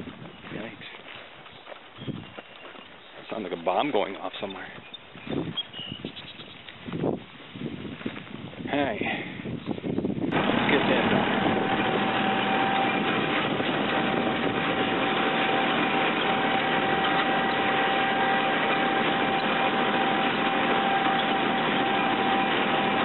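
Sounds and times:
thin steady whine: 10.3s - 23.0s
tractor engine running: 10.3s - 23.0s.

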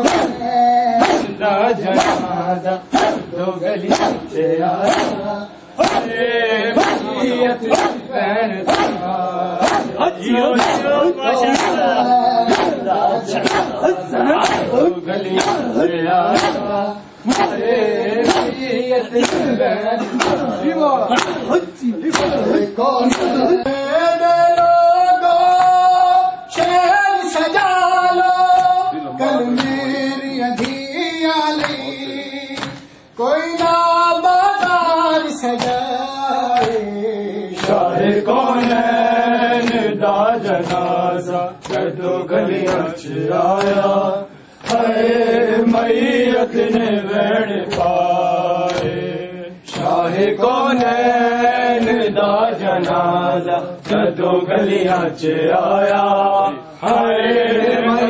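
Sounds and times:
hands slapping bare chests: 0.0s - 0.4s, 1.0s - 1.3s, 1.9s - 2.3s, 2.9s - 3.3s, 3.9s - 4.2s, 4.8s - 5.2s, 5.8s - 6.1s, 6.8s - 7.1s, 7.7s - 8.0s, 8.7s - 10.0s, 10.6s - 11.8s, 12.5s - 13.8s, 14.4s - 14.8s, 15.4s - 15.7s, 16.3s - 16.7s, 17.3s - 17.6s, 18.2s - 18.6s, 19.2s - 19.6s, 20.2s - 20.5s, 21.1s - 23.4s, 30.6s - 30.8s, 32.6s - 32.9s, 35.6s - 35.9s, 36.6s - 36.9s, 37.6s - 37.9s, 38.6s - 38.8s, 39.6s - 39.8s, 40.6s - 40.9s, 41.6s - 41.9s, 43.6s - 43.8s, 44.6s - 44.9s, 48.7s - 48.9s, 53.8s - 54.1s
men chanting a lament: 0.0s - 58.0s.

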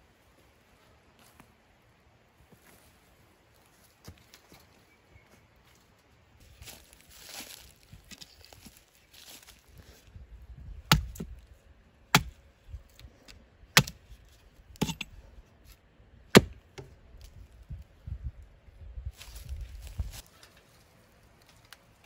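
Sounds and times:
hatchet chopping wood: 10.9s - 11.4s, 12.1s - 12.4s, 13.7s - 14.0s, 14.8s - 15.1s, 16.3s - 16.9s.

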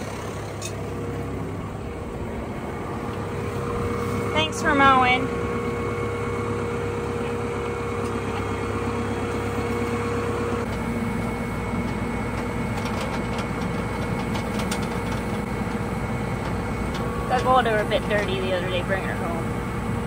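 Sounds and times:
steady hum: 0.0s - 20.0s
tractor diesel engine idling: 0.0s - 20.0s.

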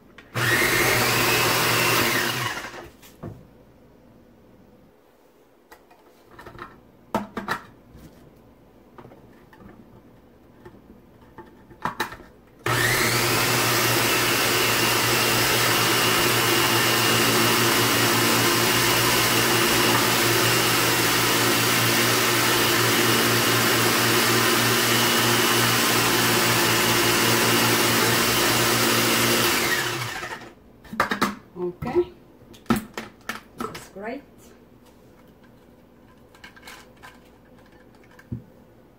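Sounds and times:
food processor motor whining: 0.4s - 2.9s, 12.6s - 30.6s.

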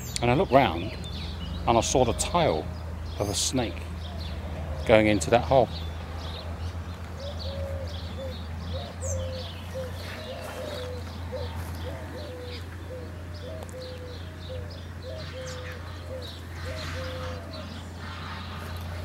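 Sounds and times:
small birds chirping: 0.0s - 19.0s
dove cooing: 6.2s - 19.0s.

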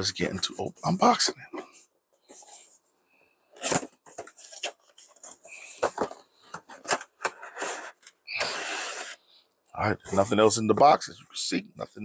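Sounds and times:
cardboard rustling scrape: 3.6s - 9.2s.

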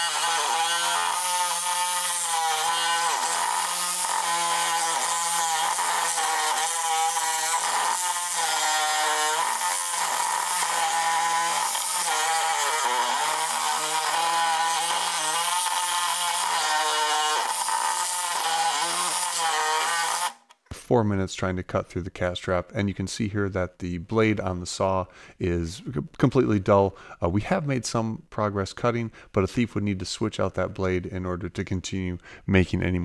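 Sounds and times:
reciprocating saw cutting steel: 0.0s - 20.5s.

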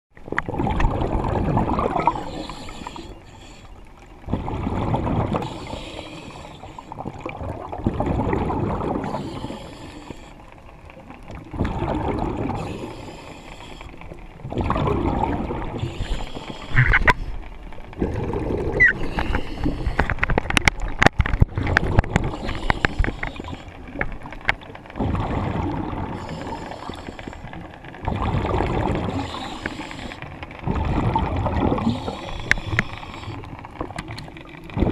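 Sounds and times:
diver exhaling bubbles: 0.4s - 3.1s, 4.3s - 6.4s, 7.0s - 9.8s, 11.5s - 13.0s, 14.4s - 17.2s, 18.0s - 20.2s, 25.0s - 27.0s, 28.0s - 33.9s
diver inhaling: 2.0s - 3.9s, 5.4s - 6.9s, 9.0s - 10.4s, 12.5s - 14.2s, 15.8s - 17.4s, 18.9s - 20.2s, 22.3s - 23.9s, 26.1s - 27.6s, 29.0s - 30.4s, 31.7s - 33.6s
sharp clicks and knocks: 19.3s - 23.3s.

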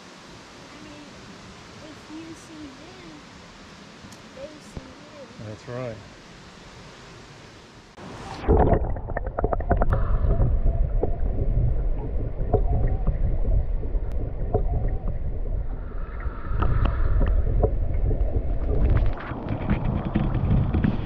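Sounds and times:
muffled underwater rumble: 8.1s - 21.0s
water knocks and clicks: 8.5s - 15.3s, 16.6s - 21.0s.

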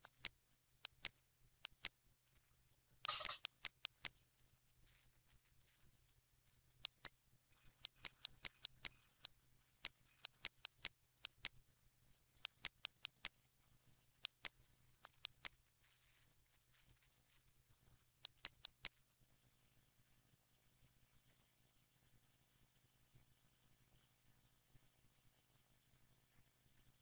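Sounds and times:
computer mouse buttons clicking: 0.0s - 2.0s, 3.0s - 4.2s, 6.7s - 11.6s, 12.4s - 13.3s, 14.2s - 15.6s, 18.2s - 19.0s
faint low hum: 0.0s - 27.0s.

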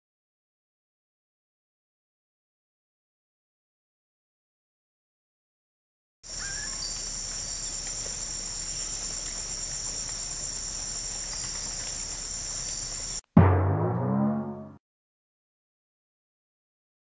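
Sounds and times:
insects trilling: 6.2s - 13.2s
bird chirp: 6.3s - 9.5s
deep ringing musical note: 13.4s - 14.8s.

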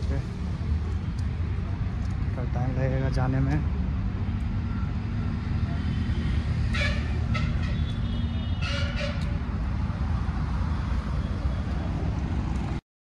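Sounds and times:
road traffic: 0.0s - 12.8s.

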